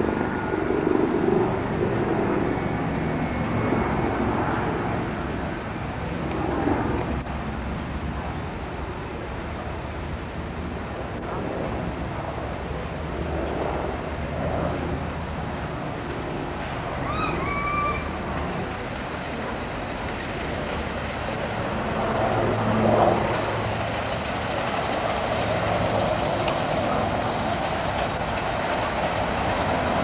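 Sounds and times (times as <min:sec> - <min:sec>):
miniature train rumbling on track: 0:15.1 - 0:30.0.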